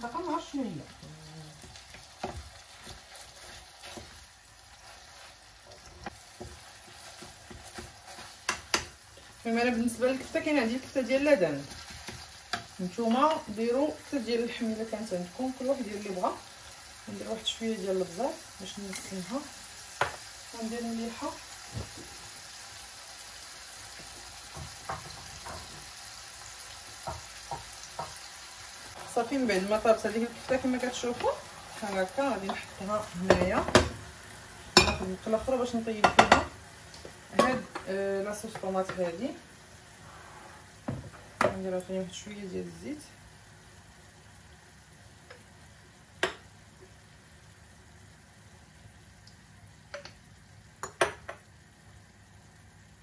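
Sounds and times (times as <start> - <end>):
meat sizzling in a pan: 0.0 - 53.0
spoon scraping a pan: 0.9 - 9.3
cookware and utensils clinking: 29.4 - 34.0, 34.7 - 36.6, 37.3 - 39.2.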